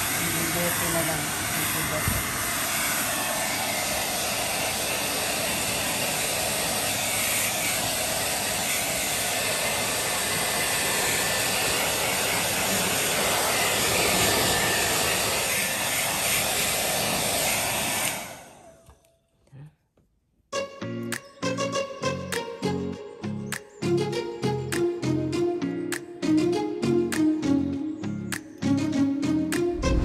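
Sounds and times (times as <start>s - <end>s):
hair dryer blowing air: 0.0s - 18.8s, 28.3s - 30.0s.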